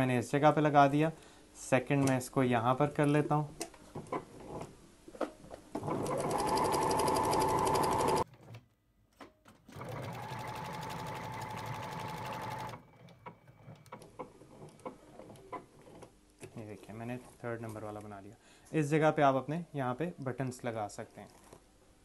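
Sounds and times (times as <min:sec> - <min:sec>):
sewing machine stitching: 0:05.8 - 0:08.6, 0:09.5 - 0:16.1.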